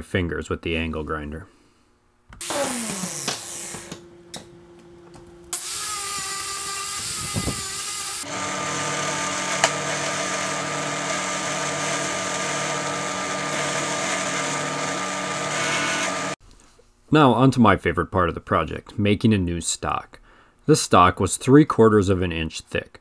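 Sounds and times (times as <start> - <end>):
drill press wire wheel whirring: 5.5 - 16.4
tool whirring winding down: 5.5 - 16.4.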